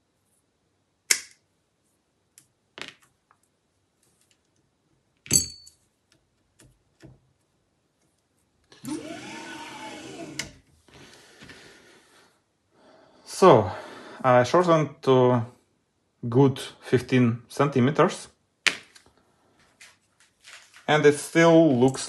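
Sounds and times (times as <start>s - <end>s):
mechanical whir: 8.8s - 10.6s.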